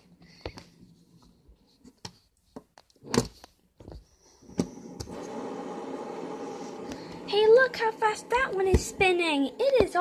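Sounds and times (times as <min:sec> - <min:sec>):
fidget spinners clicking and knocking: 0:07.8 - 0:10.0.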